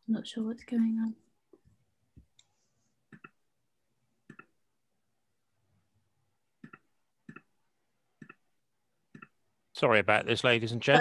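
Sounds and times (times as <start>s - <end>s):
computer mouse clicks: 3.1s - 3.4s, 4.3s - 4.6s, 6.6s - 7.5s, 8.2s - 8.4s, 9.1s - 9.4s.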